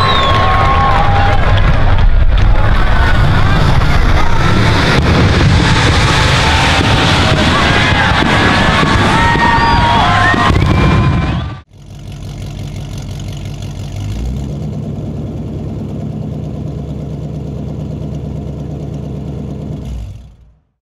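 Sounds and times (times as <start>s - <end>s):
engine idling: 11.6s - 20.8s.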